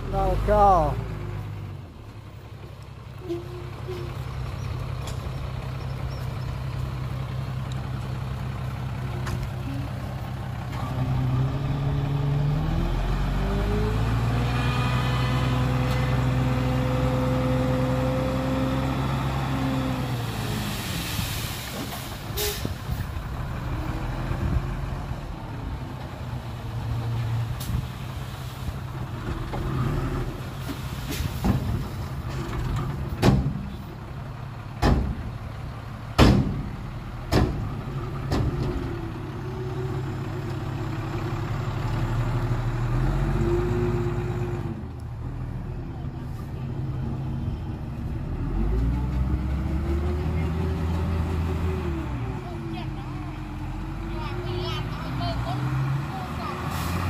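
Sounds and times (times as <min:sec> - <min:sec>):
heavy diesel engine revving: 0:07.6 - 0:25.9, 0:36.5 - 0:45.5, 0:47.9 - 0:57.0.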